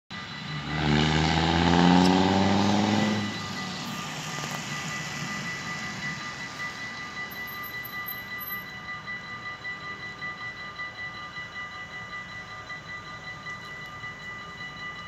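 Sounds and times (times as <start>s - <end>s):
level crossing warning bells: 0.1s - 15.0s
vehicle passing on wet road: 0.6s - 5.7s.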